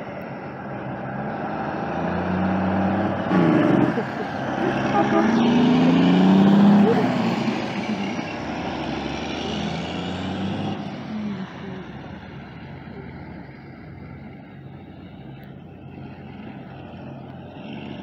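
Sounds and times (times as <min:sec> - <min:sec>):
truck diesel engine pulling away: 0:00.0 - 0:18.0.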